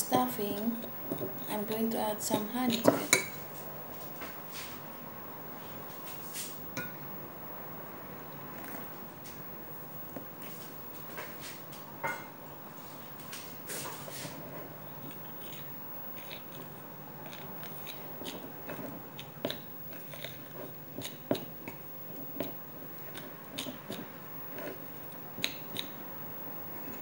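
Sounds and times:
hands mixing dough in a bowl: 12.8s - 27.0s.

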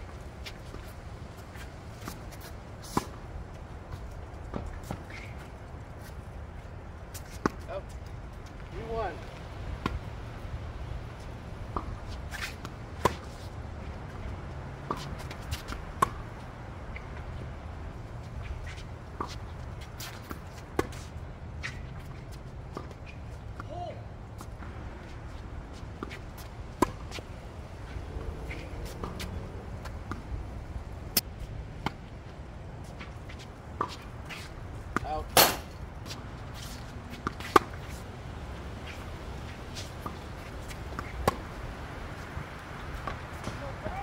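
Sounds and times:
tennis ball hit and bouncing: 11.7s - 13.4s, 14.8s - 16.2s, 26.8s - 27.2s, 27.9s - 30.3s, 33.8s - 38.0s, 39.8s - 41.6s, 43.0s - 44.0s.

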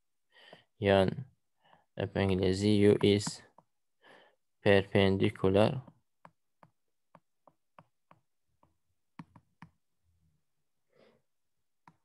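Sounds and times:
stylus tapping tablet screen: 2.6s - 3.9s, 5.6s - 10.0s, 11.7s - 12.0s.

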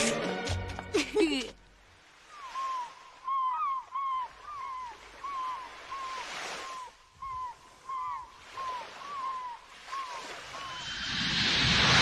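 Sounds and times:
seagulls crying: 2.2s - 11.0s
surf washing in: 5.0s - 12.0s.

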